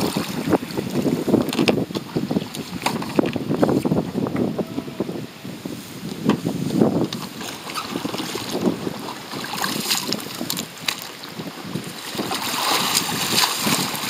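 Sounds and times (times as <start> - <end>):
kayak paddle splashing: 0.0 - 4.3, 5.9 - 14.0
wind buffeting microphone: 0.0 - 14.0
small waves lapping: 7.1 - 14.0.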